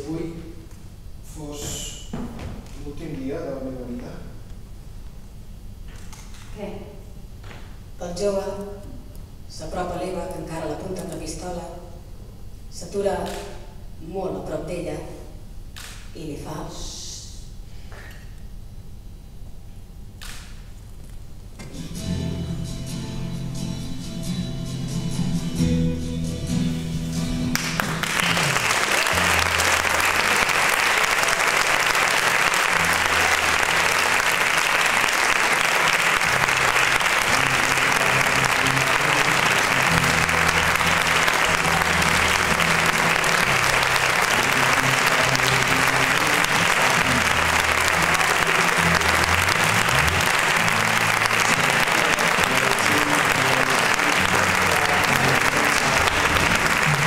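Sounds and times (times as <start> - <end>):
music with bass line: 21.6 - 28.0, 37.3 - 57.0
audience applauding: 27.5 - 57.0.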